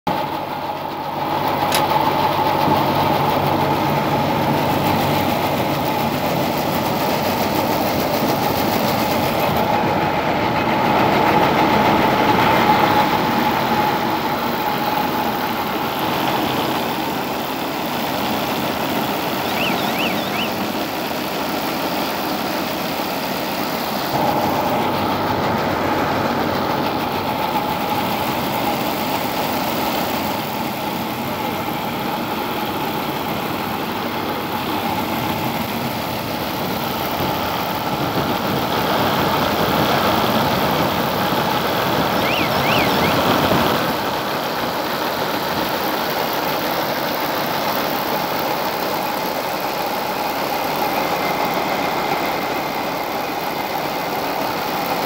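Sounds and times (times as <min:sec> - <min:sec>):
baling machine humming: 0:11.7 - 0:22.0, 0:40.0 - 0:44.2.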